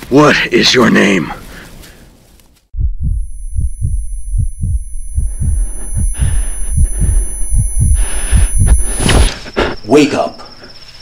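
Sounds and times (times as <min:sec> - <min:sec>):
pounding heartbeat: 0:02.7 - 0:09.3
high steady ringing tone: 0:02.8 - 0:11.0.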